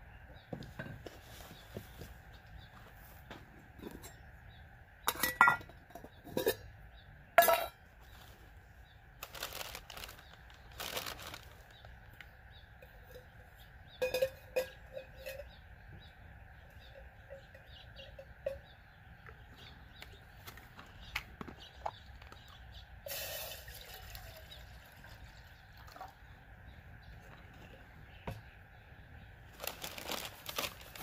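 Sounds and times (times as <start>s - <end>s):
metal pots clinking: 5.0s - 6.8s, 7.4s - 7.8s, 12.8s - 15.6s, 16.7s - 18.8s.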